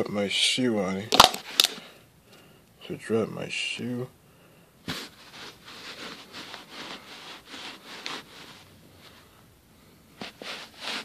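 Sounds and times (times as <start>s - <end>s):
shoe sole scraping on carpet: 4.9s - 9.2s, 10.2s - 11.0s.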